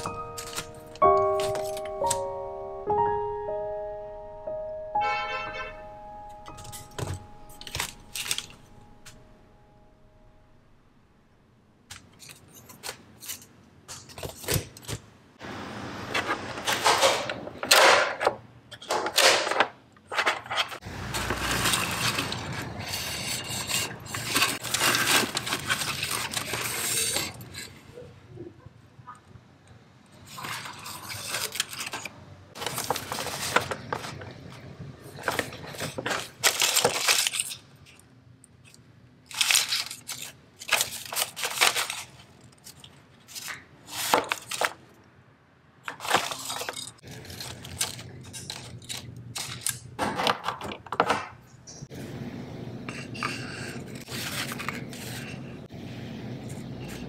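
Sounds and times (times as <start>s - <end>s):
plastic-wrapped packets handled: 0.0s - 2.3s, 6.5s - 9.1s, 20.8s - 27.6s, 30.2s - 44.9s, 45.9s - 50.0s, 53.9s - 55.5s
paper cards sliding: 20.9s - 27.7s, 53.2s - 55.6s
cardboard boxes shuffling in tin: 21.1s - 27.5s, 32.6s - 34.2s.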